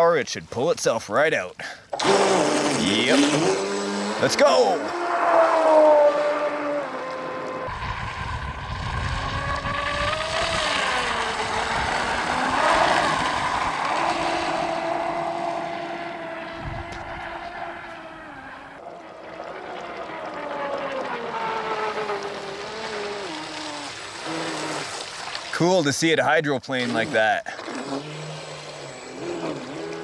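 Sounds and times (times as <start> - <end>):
electric motor whining: 2.0 - 24.9, 27.6 - 30.0
rush of spray: 19.8 - 30.0.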